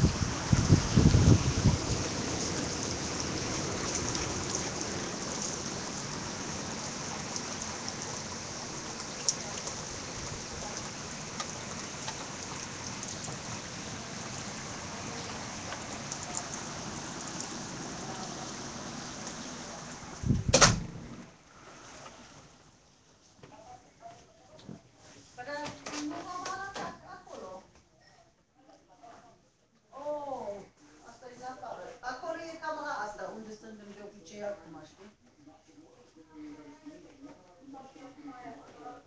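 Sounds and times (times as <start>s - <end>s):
steady rain hiss: 0.0s - 22.8s
drip ticks: 10.8s - 13.4s, 15.7s - 16.6s.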